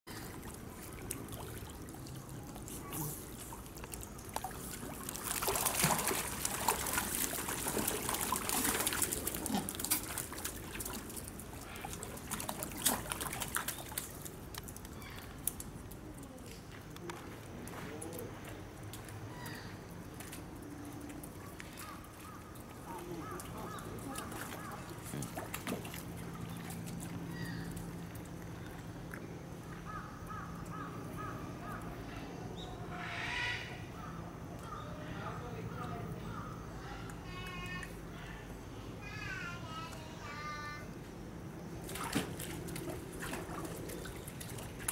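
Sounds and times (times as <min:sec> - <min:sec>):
water pouring and splashing: 0:00.1 - 0:16.1, 0:19.9 - 0:29.3, 0:41.8 - 0:44.9
small sharp splashes: 0:00.1 - 0:16.7, 0:18.8 - 0:29.8, 0:41.8 - 0:44.9.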